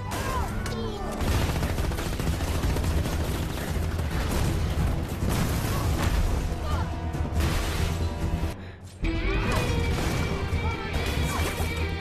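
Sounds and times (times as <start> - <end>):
rapid battle gunfire: 0.0 - 6.8.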